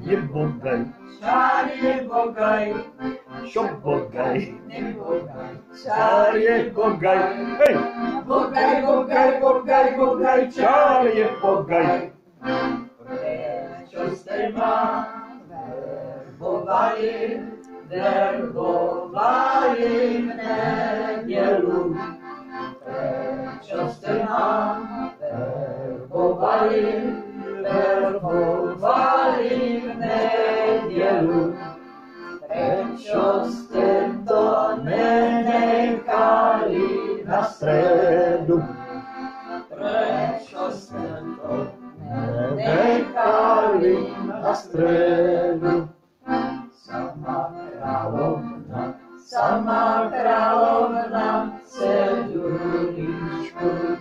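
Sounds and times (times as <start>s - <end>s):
man singing: 0.0s - 12.1s, 37.0s - 38.9s, 39.7s - 45.9s, 46.8s - 49.7s
piano accordion: 0.0s - 54.0s.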